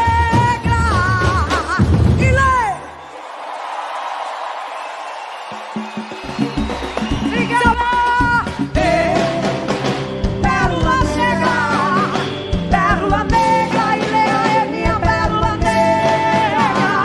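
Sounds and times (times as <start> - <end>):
live band with drums: 0.0 - 2.8, 4.8 - 17.0
woman singing: 0.0 - 2.8, 7.3 - 17.0.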